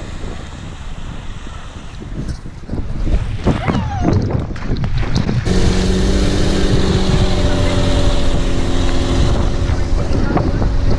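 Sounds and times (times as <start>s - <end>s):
wind on microphone: 0.0s - 10.9s
boat engine running: 5.0s - 10.9s.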